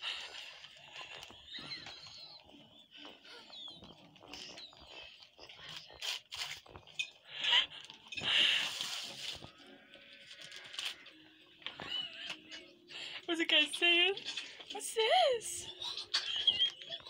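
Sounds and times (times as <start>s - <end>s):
cat squeaking and clicking: 15.7s - 17.0s.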